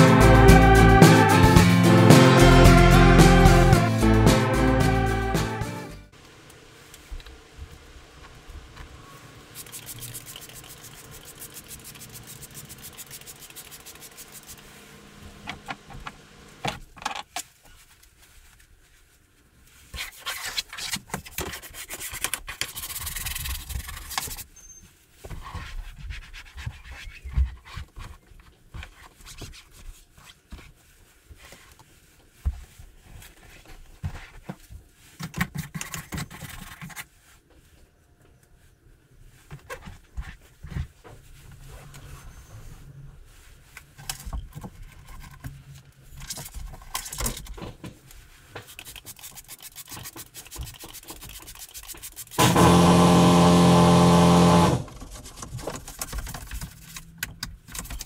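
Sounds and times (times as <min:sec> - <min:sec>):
hand scrubbing a wall panel: 0:09.5 - 0:14.9, 0:48.2 - 0:56.9.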